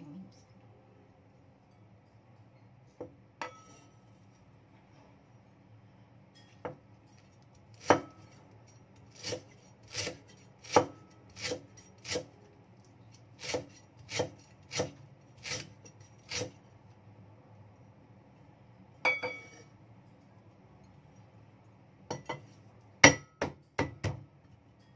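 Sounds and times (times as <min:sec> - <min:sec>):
knife chopping on wooden board: 0:07.8 - 0:08.2, 0:09.1 - 0:12.3, 0:13.4 - 0:15.7.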